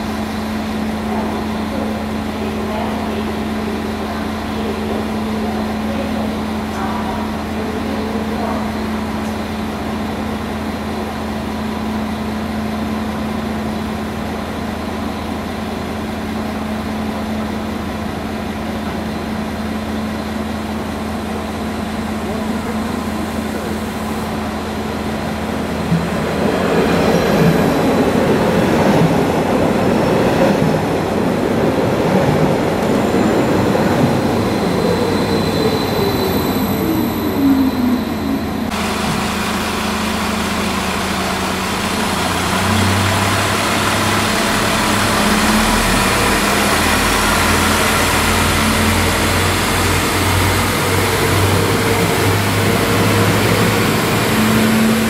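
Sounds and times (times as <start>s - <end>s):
train passing with low engine hum: 0.0s - 55.0s
train rail and running noise: 0.0s - 55.0s
electric train motor whine: 34.1s - 55.0s.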